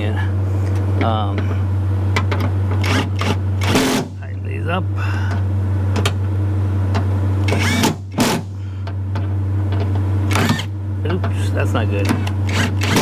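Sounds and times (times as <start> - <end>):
steady low hum: 0.0 - 13.0
impact driver bursts: 2.8 - 4.1, 7.5 - 8.5, 10.3 - 10.7, 12.5 - 13.0.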